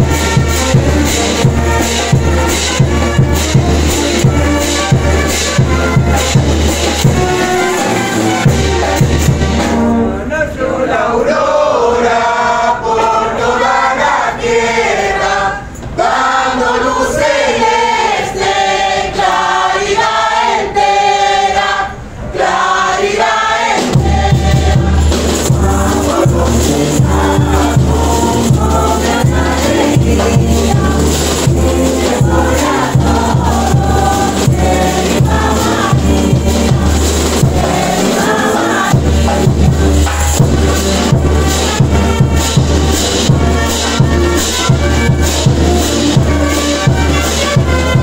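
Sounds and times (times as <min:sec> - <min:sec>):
low drum beat: 0:00.0 - 0:09.9, 0:23.8 - 0:48.0
group singing a religious song: 0:00.0 - 0:48.0.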